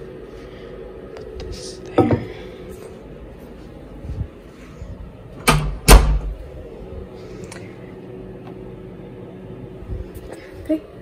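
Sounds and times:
door closing thud: 0:05.4 - 0:06.4.

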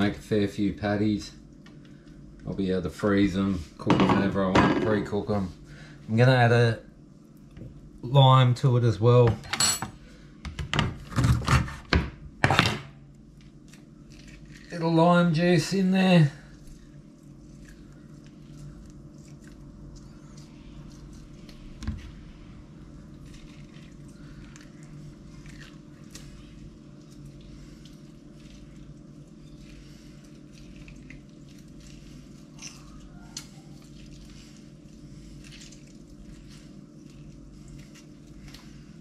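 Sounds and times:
steady low hum: 0:00.0 - 0:39.0
juice dripping: 0:13.1 - 0:39.0.

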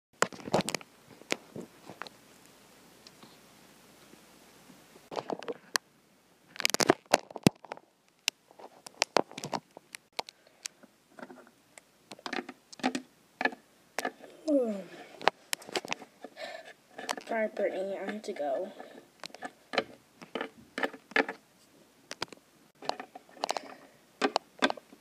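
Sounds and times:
plastic toys clicking and tapping: 0:12.1 - 0:14.3, 0:17.0 - 0:21.4, 0:22.1 - 0:24.9.

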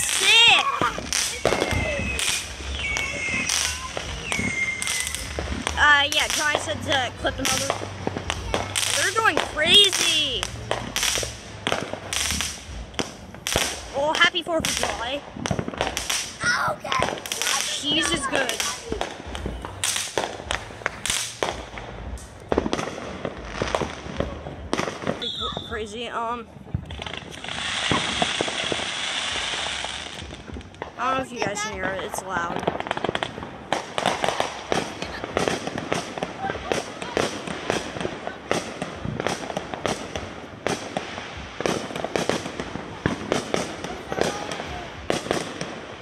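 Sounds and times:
fireworks bangs and pops: 0:00.0 - 0:46.0
low rumble: 0:00.8 - 0:25.8.

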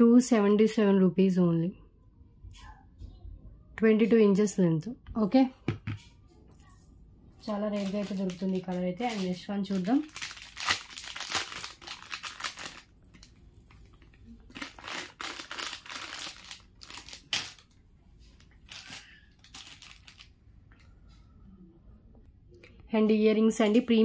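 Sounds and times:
plastic packaging crinkling: 0:07.4 - 0:20.4.

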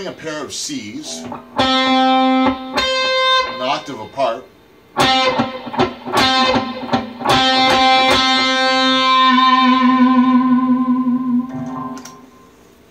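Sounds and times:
electric guitar notes: 0:01.0 - 0:04.1, 0:05.0 - 0:12.6.

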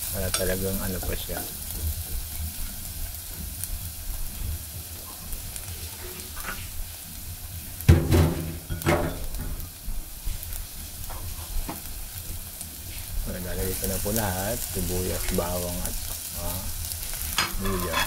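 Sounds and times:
garlic sizzling in oil: 0:00.0 - 0:18.0.

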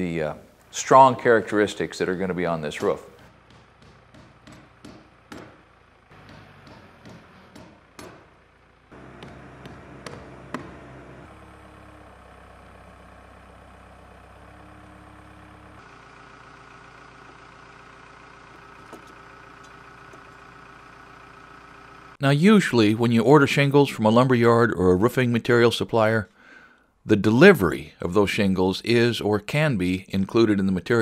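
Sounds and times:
engine running steadily: 0:01.8 - 0:22.2
sharp knocks: 0:02.8 - 0:11.2.

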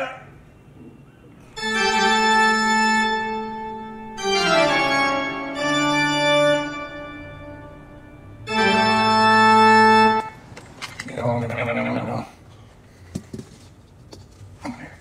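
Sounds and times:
organ-like keyboard chords: 0:01.2 - 0:10.6.

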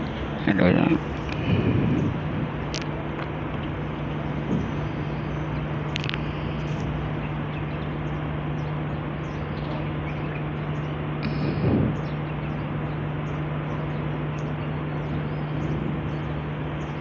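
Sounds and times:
low machine hum: 0:00.0 - 0:17.0
bird chirps: 0:03.6 - 0:17.0.

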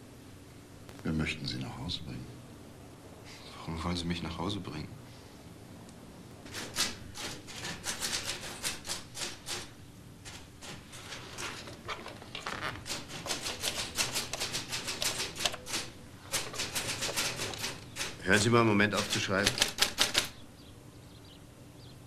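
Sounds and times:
typewriter keystrokes: 0:06.5 - 0:20.4.

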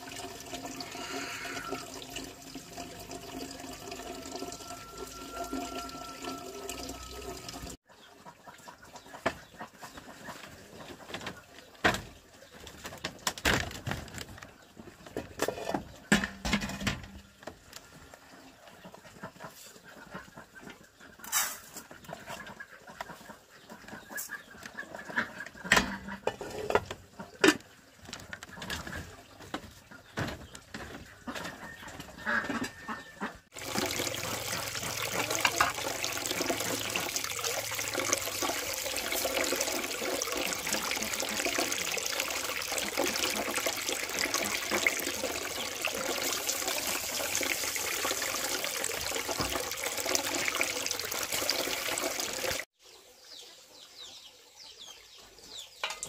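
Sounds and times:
running water: 0:00.0 - 0:07.8, 0:33.5 - 0:52.7.

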